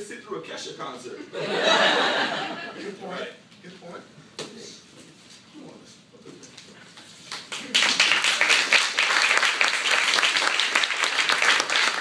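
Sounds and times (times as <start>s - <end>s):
audience applauding: 7.3s - 12.0s.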